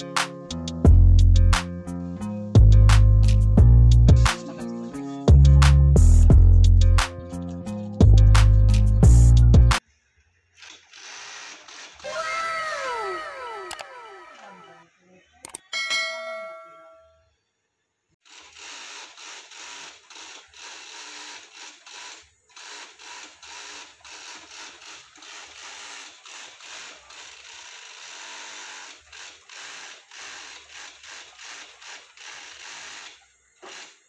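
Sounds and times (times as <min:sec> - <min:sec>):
industrial sewing machine clattering: 0:18.2 - 0:34.0.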